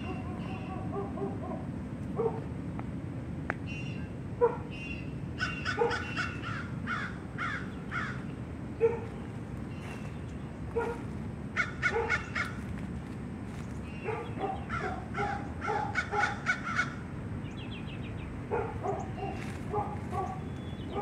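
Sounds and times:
low background hum: 0:00.0 - 0:21.0
crows cawing: 0:05.4 - 0:08.3, 0:11.5 - 0:12.7, 0:14.4 - 0:17.1
high bird chirp: 0:20.2 - 0:21.0.

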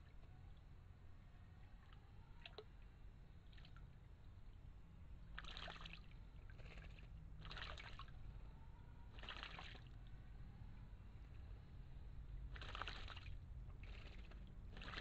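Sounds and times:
bird splashing in water: 0:05.3 - 0:08.1, 0:09.1 - 0:09.9, 0:12.5 - 0:15.0.

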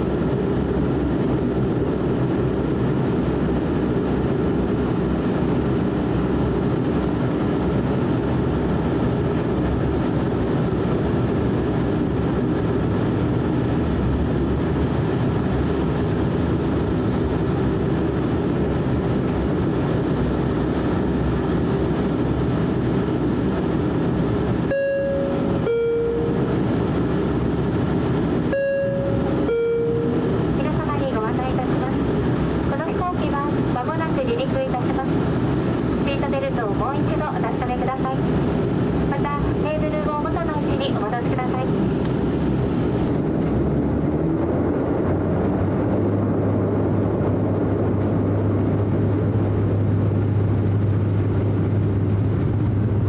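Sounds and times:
turboprop cabin drone: 0:00.0 - 0:53.0
two-tone cabin chime: 0:24.7 - 0:26.5, 0:28.5 - 0:30.2.

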